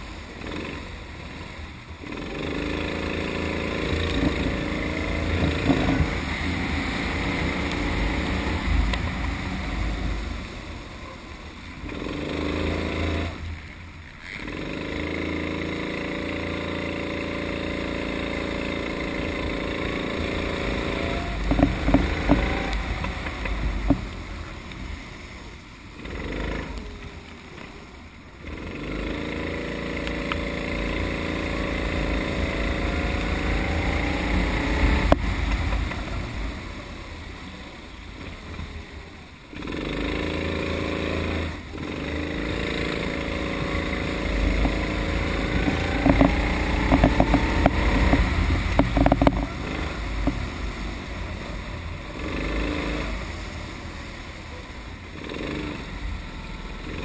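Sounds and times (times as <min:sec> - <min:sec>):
kart engine accelerating: 0:00.0 - 0:13.5, 0:14.2 - 0:24.8, 0:25.9 - 0:27.7, 0:28.4 - 0:57.0
low rumble: 0:30.1 - 0:39.6, 0:40.3 - 0:55.2.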